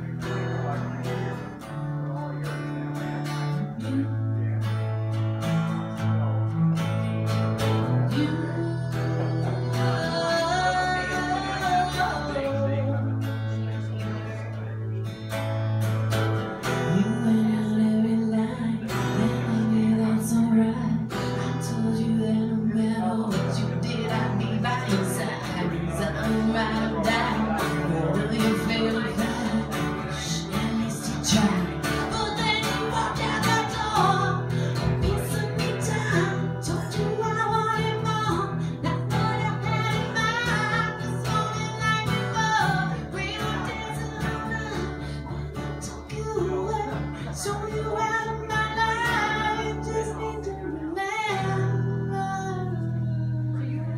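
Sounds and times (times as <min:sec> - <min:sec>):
strummed acoustic guitar: 0:00.0 - 0:53.9
woman singing: 0:07.6 - 0:13.3, 0:16.7 - 0:53.9.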